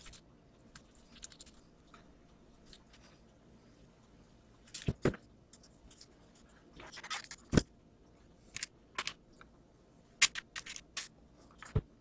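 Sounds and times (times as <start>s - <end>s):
parts clicking and knocking: 8.5s - 9.5s, 10.2s - 12.0s.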